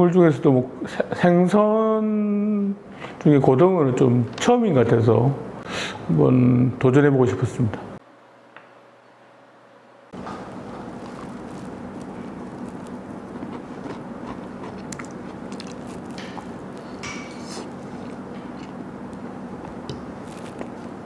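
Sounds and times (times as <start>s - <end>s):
low room hum: 0.0s - 21.0s
person chewing food: 10.2s - 21.0s
mouth clicks and smacks: 12.4s - 18.8s.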